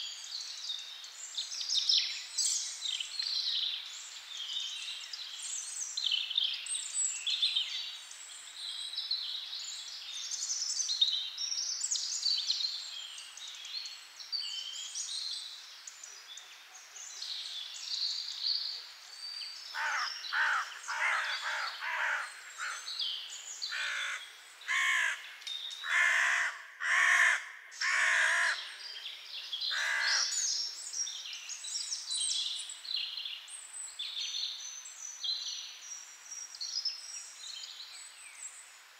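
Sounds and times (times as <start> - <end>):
small birds chirping: 0.0 - 38.9
crow cawing harshly: 19.8 - 22.8, 23.7 - 25.2, 25.8 - 28.6, 29.7 - 30.3.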